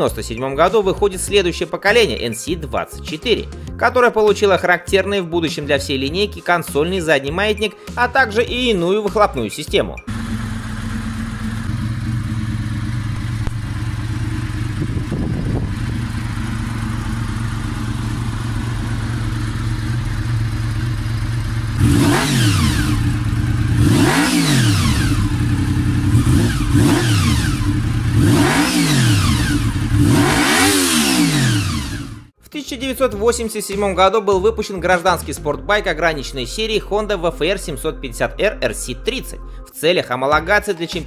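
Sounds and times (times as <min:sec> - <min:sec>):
motorcycle engine idling and revving: 0:10.0 - 0:32.4.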